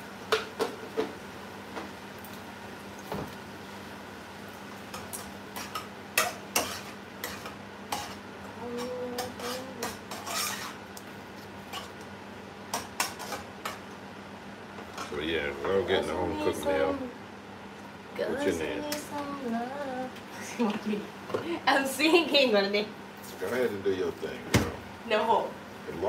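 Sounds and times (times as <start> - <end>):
low sizzle: 0.0 - 26.0
spatula scraping frying pan: 5.5 - 8.2, 8.8 - 10.8, 12.7 - 13.8.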